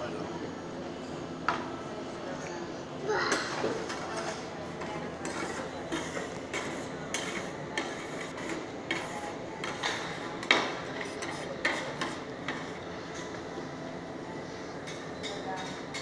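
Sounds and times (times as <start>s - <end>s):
metal spatulas scraping a steel pan: 5.2s - 9.8s.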